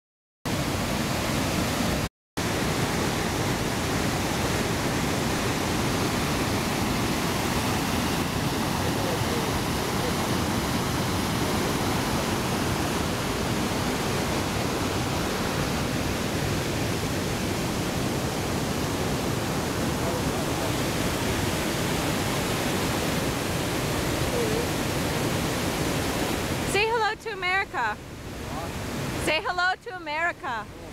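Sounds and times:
waterfall rushing over rocks: 0.5s - 27.0s, 28.0s - 29.4s.

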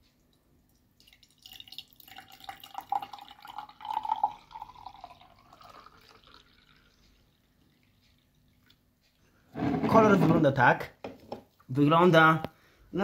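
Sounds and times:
liquid pouring into mug: 1.0s - 8.8s.

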